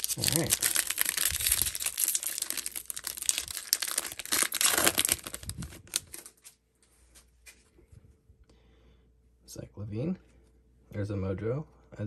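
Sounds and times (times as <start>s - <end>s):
foil wrapper tearing and crinkling: 0.0s - 6.5s.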